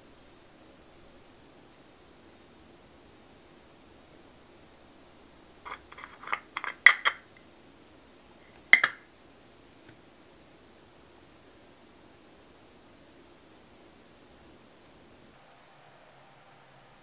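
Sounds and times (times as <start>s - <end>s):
small hard clicks and clinks: 5.7s - 7.4s, 8.6s - 9.0s.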